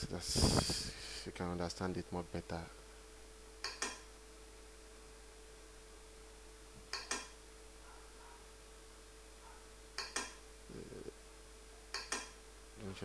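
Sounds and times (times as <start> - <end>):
faint steady hum: 0.0 - 13.0
computer mouse clicks: 3.6 - 4.0, 6.9 - 7.3, 10.0 - 10.4, 11.9 - 12.4.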